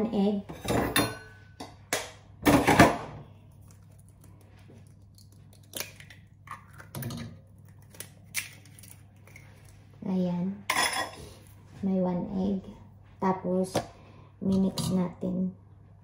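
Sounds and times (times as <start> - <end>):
kitchen utensil clatter: 0.5 - 1.4, 10.7 - 11.2
egg cracking against bowl: 3.5 - 9.8.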